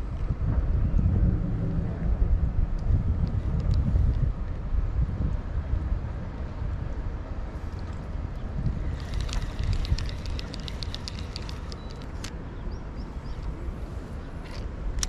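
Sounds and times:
wind buffeting microphone: 0:00.0 - 0:15.0
rapid sharp high ticks: 0:08.9 - 0:12.2.

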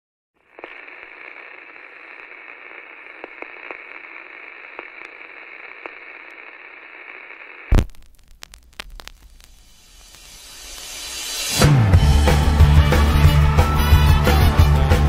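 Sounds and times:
vinyl record surface noise: 0:00.4 - 0:11.6.

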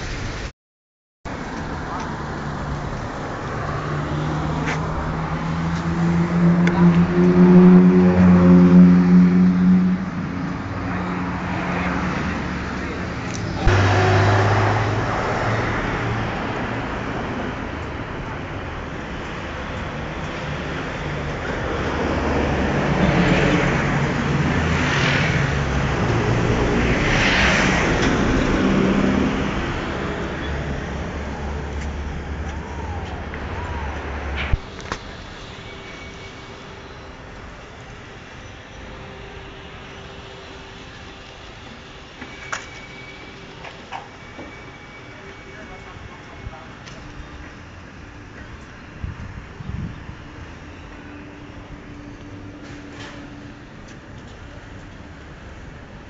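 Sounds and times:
street traffic noise: 0:00.0 - 0:00.5, 0:01.3 - 0:56.0
vehicle engine humming: 0:01.3 - 0:56.0
cars rushing past: 0:01.4 - 0:40.9.

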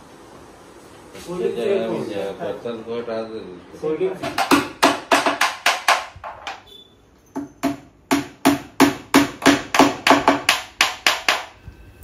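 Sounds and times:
hammer tapping wooden dowels: 0:04.2 - 0:06.7, 0:07.3 - 0:11.6.

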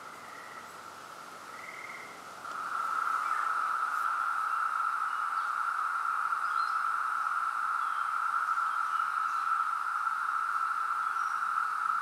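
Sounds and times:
cicadas droning: 0:00.0 - 0:12.0.

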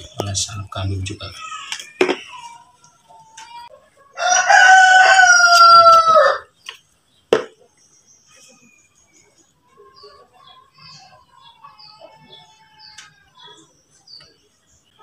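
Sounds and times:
rooster crowing: 0:04.1 - 0:06.5.

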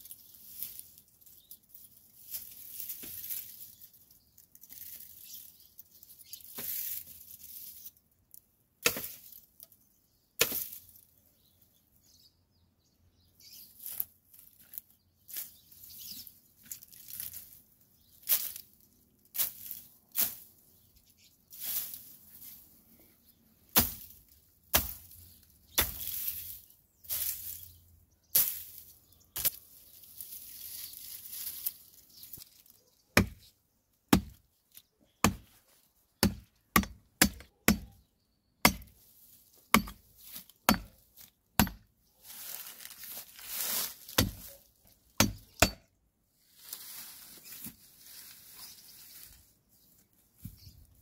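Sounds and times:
machete chopping wood: 0:08.8 - 0:09.3, 0:23.7 - 0:24.1, 0:24.7 - 0:25.2, 0:25.8 - 0:26.2, 0:33.2 - 0:33.4, 0:34.1 - 0:34.4, 0:35.2 - 0:35.5, 0:36.2 - 0:38.0, 0:38.6 - 0:39.0, 0:39.7 - 0:40.0, 0:40.6 - 0:41.0, 0:41.6 - 0:41.9, 0:44.2 - 0:44.5, 0:45.2 - 0:45.9.

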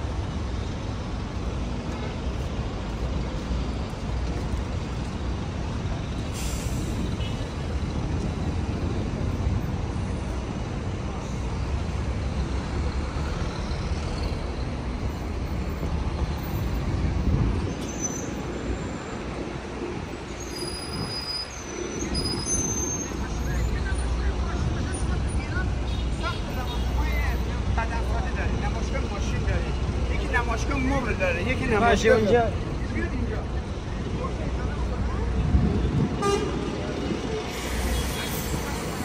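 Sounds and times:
traffic rumble: 0:00.0 - 0:39.0
short sharp hiss: 0:06.3 - 0:07.0.

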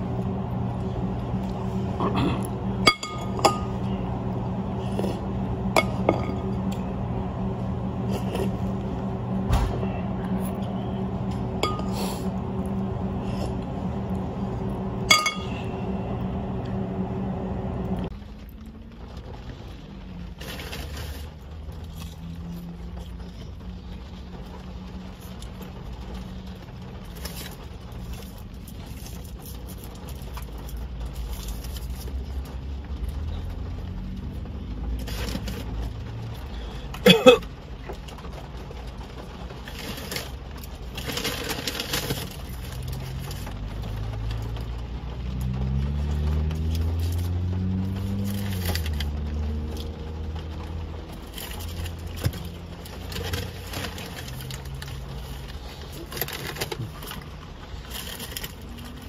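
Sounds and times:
steady hum: 0:00.0 - 0:18.1
low rumble inside a car: 0:00.0 - 0:59.0
tableware clinking: 0:02.9 - 0:03.8, 0:11.6 - 0:12.0, 0:15.1 - 0:15.7.

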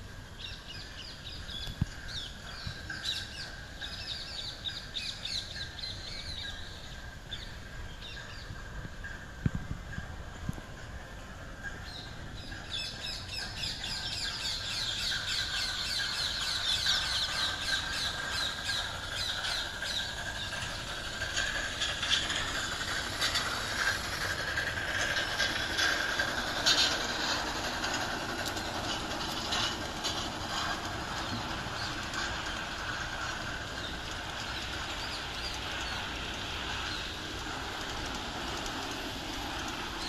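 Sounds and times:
fine clicks from wheels on track: 0:00.0 - 0:40.0
model train wheels squealing: 0:11.9 - 0:40.0.

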